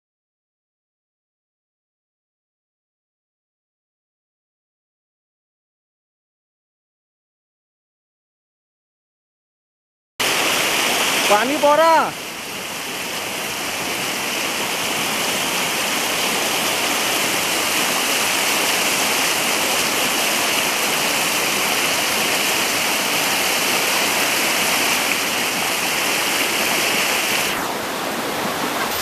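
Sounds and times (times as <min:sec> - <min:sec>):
river rushing over rocks: 0:10.2 - 0:29.0.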